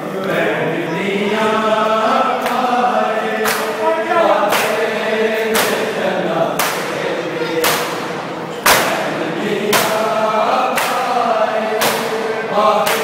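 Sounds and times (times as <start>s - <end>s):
men chanting together: 0.0s - 13.0s
hands slapping chests: 2.4s - 2.7s, 3.4s - 3.8s, 4.5s - 4.9s, 5.5s - 5.8s, 6.6s - 7.0s, 7.6s - 9.0s, 10.7s - 11.2s, 11.8s - 12.2s.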